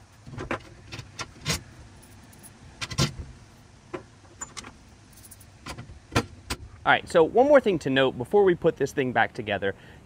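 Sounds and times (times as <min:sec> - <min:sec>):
bolts and washers clinking: 0:00.0 - 0:06.7.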